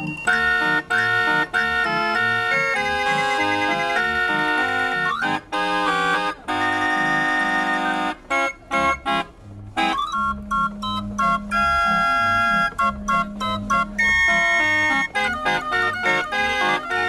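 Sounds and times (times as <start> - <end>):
barrel organ playing: 0.0 - 17.0.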